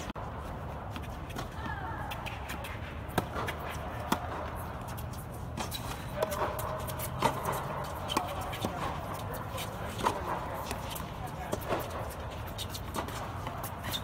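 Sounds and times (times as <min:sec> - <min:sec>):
tennis ball bouncing: 0:00.0 - 0:14.0
tennis racket strikes: 0:05.6 - 0:12.1.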